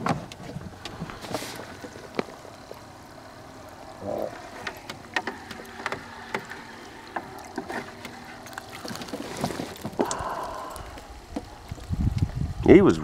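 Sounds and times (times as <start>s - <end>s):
net splashing in bucket of water: 4.4s - 10.2s.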